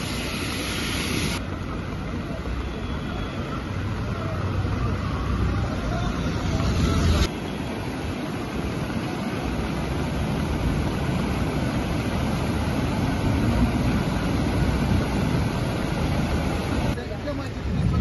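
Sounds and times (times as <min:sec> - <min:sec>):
floodwater rushing: 0:04.7 - 0:18.0.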